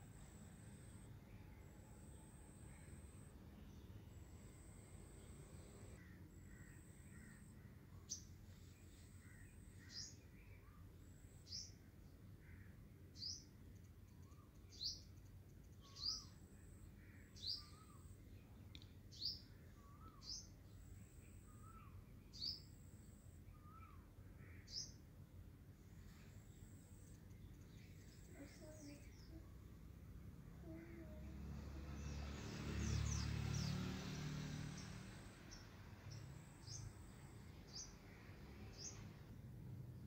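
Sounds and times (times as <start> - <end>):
low background noise: 0.0 - 40.0
bird chirping: 13.1 - 25.0, 31.8 - 39.3.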